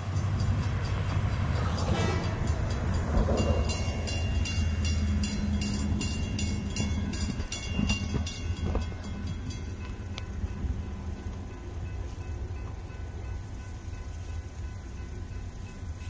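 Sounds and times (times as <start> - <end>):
railroad crossing bells ringing: 0.0 - 16.0
low rumble: 0.2 - 11.5.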